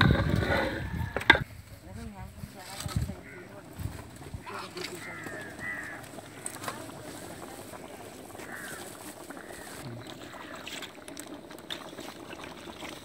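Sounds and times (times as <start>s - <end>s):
outdoor background noise: 0.0s - 13.0s.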